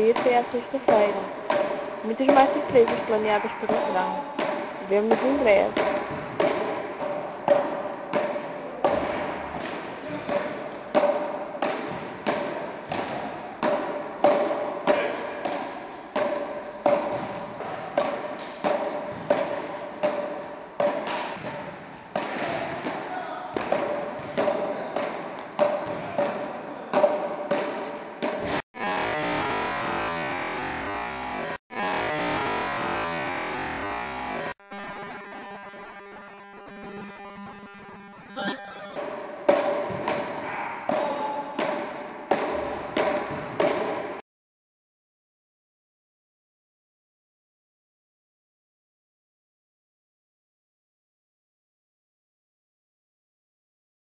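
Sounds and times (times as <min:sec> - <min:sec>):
wooden paddles hitting ball: 0:00.1 - 0:28.6, 0:39.0 - 0:44.2.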